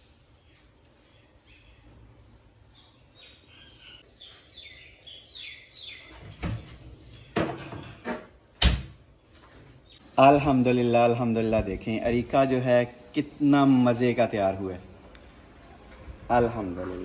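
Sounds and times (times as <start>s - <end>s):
bird chirping: 0.0s - 7.4s, 9.2s - 10.9s.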